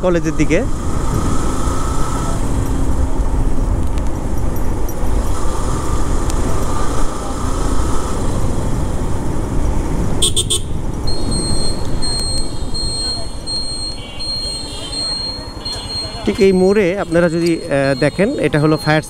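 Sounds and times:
motorcycle engine: 0:00.0 - 0:18.8
wind rumble: 0:00.7 - 0:13.8
vehicle horn: 0:10.2 - 0:10.8.

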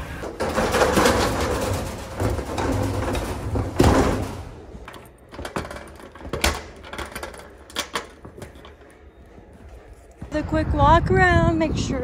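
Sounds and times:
metal roll-up door rattling: 0:00.0 - 0:09.0.

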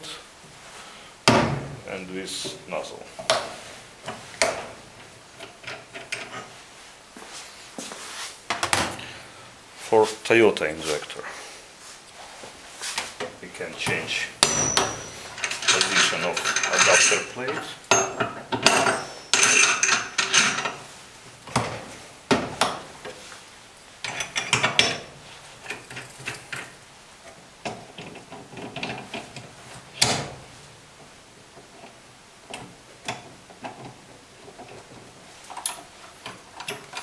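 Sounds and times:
metal clicks and scraping: 0:05.4 - 0:06.5, 0:14.4 - 0:20.8, 0:35.5 - 0:37.0
sharp metallic knock: 0:14.4 - 0:15.2.

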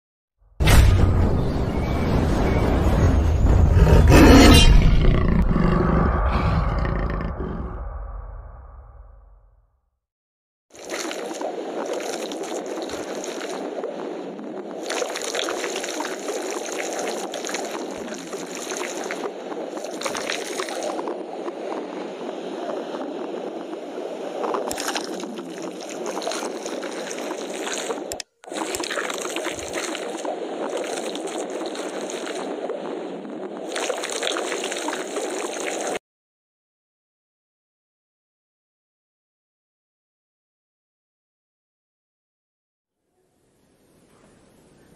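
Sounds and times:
rushing gurgling water: 0:10.8 - 0:36.0.

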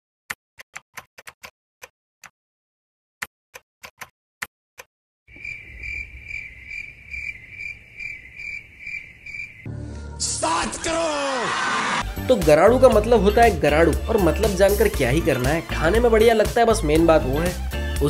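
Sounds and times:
cricket chirping: 0:05.3 - 0:09.7.

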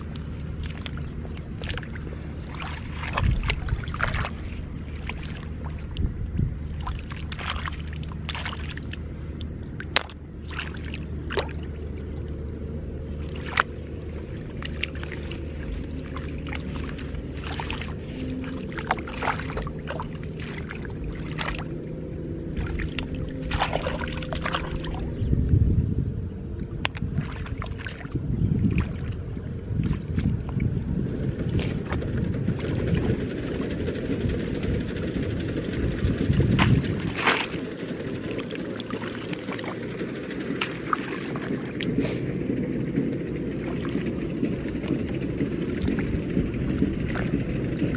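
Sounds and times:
hands splashing in water: 0:00.0 - 0:12.3, 0:13.0 - 0:25.2, 0:26.8 - 0:29.2, 0:35.9 - 0:42.3, 0:43.6 - 0:47.9
low motor drone: 0:00.0 - 0:47.9.

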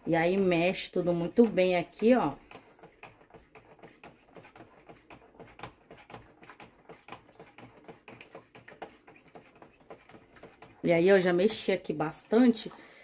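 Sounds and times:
spatula scraping plastic pot: 0:00.0 - 0:13.0.

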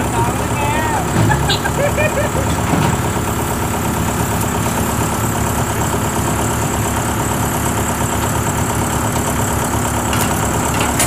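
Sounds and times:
cart engine low pulsing: 0:00.0 - 0:11.0.

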